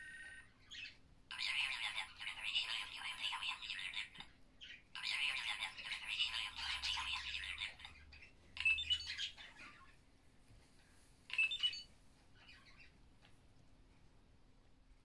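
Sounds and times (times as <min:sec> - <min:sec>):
toy robot electronic chirps and beeps: 0:11.3 - 0:11.9.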